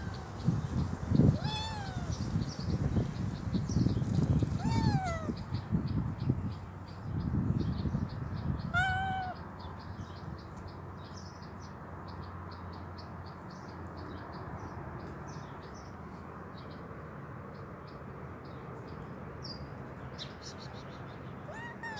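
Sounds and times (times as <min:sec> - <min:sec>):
kitten meowing: 0:00.0 - 0:00.3, 0:01.3 - 0:02.2, 0:04.4 - 0:05.4, 0:08.7 - 0:09.4, 0:21.5 - 0:21.9
small birds chirping: 0:00.0 - 0:16.9, 0:17.5 - 0:21.9.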